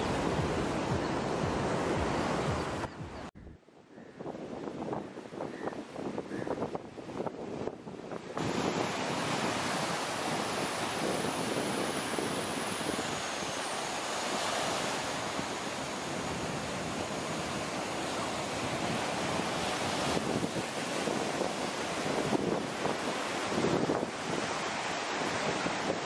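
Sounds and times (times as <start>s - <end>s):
ocean surf on beach: 0.0s - 3.4s, 4.0s - 26.0s
wind on microphone: 0.0s - 26.0s.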